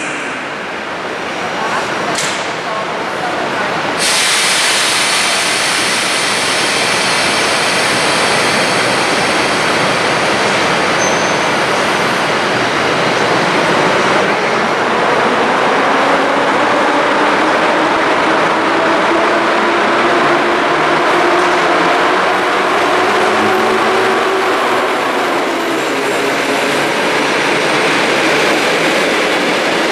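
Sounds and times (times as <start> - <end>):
train moving slowly: 0.0 - 29.9
loud steady hiss: 4.0 - 9.6.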